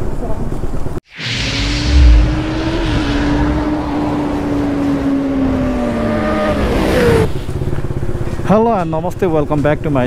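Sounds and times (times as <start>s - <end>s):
droning tone sinking in pitch: 1.1s - 6.4s
hissing rush: 1.1s - 7.5s.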